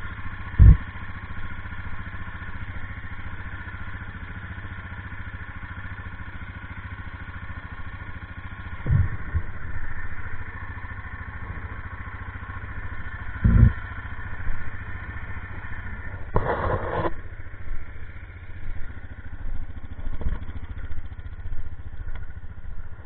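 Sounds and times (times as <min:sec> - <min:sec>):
engine idling: 0:00.0 - 0:23.0
thump: 0:00.6 - 0:00.8, 0:08.8 - 0:09.5.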